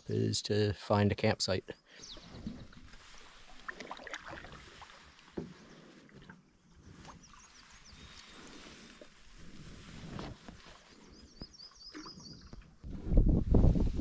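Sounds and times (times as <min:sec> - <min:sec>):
paddle strokes in water: 0:02.1 - 0:13.2
soft knocks on canoe: 0:05.3 - 0:05.6.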